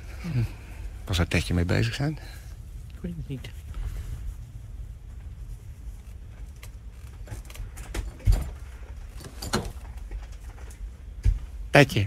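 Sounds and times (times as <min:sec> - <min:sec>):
steady low hum: 0:00.0 - 0:12.0
small clicks and rustles: 0:03.7 - 0:11.2.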